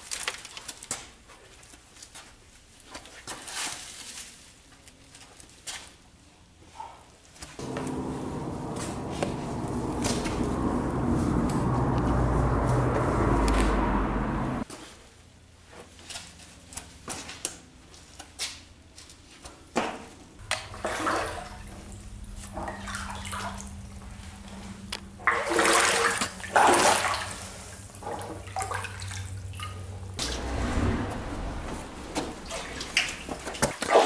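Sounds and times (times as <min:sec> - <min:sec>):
low steady hum: 0:07.6 - 0:14.6, 0:20.4 - 0:33.8
splashing steps in water: 0:25.2 - 0:29.8.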